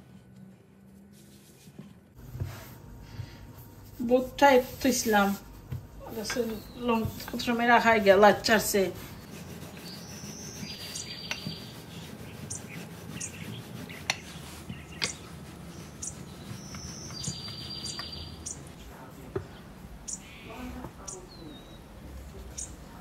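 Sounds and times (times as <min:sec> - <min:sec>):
birds chirping: 0:06.0 - 0:23.0.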